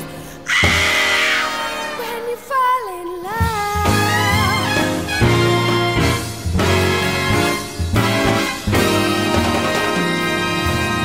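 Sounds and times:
swing music with brass: 0.6s - 2.7s, 3.4s - 11.0s.

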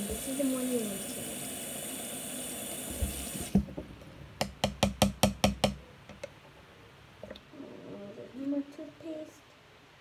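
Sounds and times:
tap running: 0.0s - 6.3s
sharp knocks: 3.0s - 6.2s.

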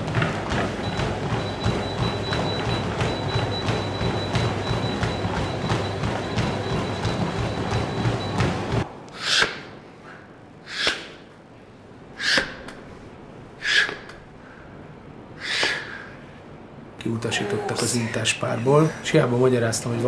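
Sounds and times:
sharp exhalations: 9.1s - 11.2s, 13.6s - 14.7s.

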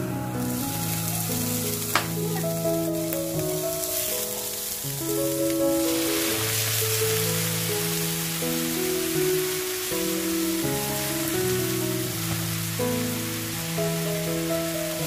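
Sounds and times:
background music of held notes: 0.0s - 15.0s
food sizzling in hot oil: 0.2s - 15.0s
knock: 2.0s - 2.2s.

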